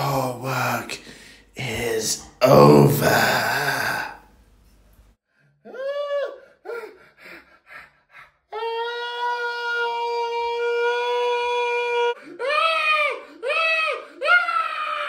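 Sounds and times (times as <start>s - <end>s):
wailing cries: 8.5s - 15.0s.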